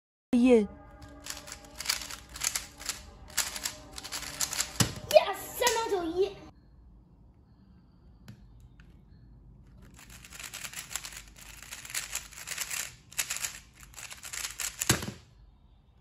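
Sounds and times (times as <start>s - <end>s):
plastic puzzle cube clicking: 1.2s - 5.0s, 9.8s - 15.2s
cube thud set down: 14.8s - 15.2s.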